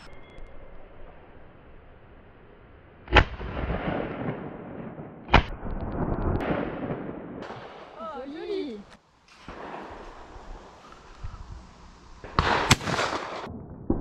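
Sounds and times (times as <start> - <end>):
shotgun shots: 3.1 - 7.9, 12.2 - 14.0
rolling echo of gunshots: 3.1 - 8.0, 12.2 - 14.0.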